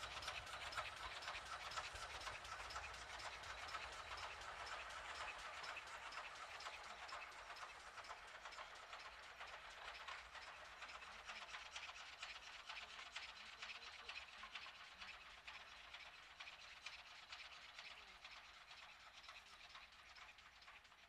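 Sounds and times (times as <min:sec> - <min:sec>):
steam locomotive hiss and running: 0:00.0 - 0:07.0.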